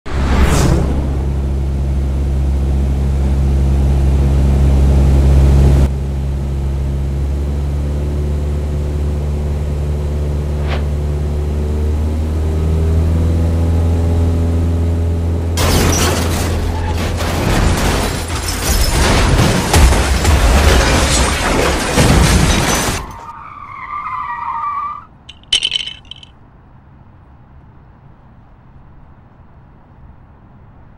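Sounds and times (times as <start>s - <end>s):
plane crashing into ground: 0.1s - 2.5s
propeller plane engine droning: 0.9s - 15.6s.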